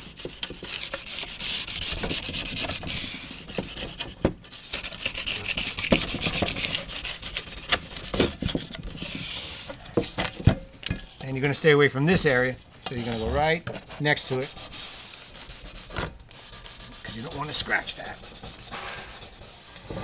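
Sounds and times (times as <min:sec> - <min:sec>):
sandpaper rubbing back and forth: 0:00.0 - 0:09.7, 0:14.0 - 0:20.0.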